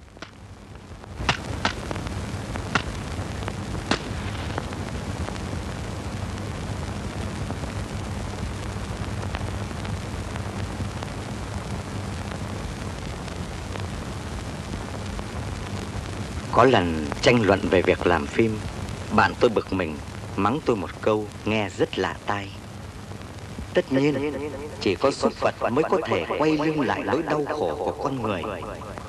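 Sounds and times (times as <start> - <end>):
film soundtrack hiss: 0.0 - 29.0
sharp clicks and pops: 0.1 - 0.4, 1.2 - 4.9
low hum: 23.2 - 29.0.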